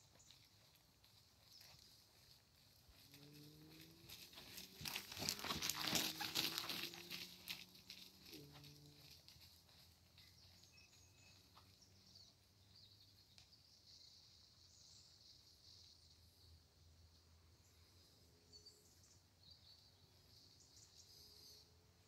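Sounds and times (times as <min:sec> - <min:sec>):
horse tack clattering: 0:00.0 - 0:11.8
horse hoofbeats: 0:00.0 - 0:12.3.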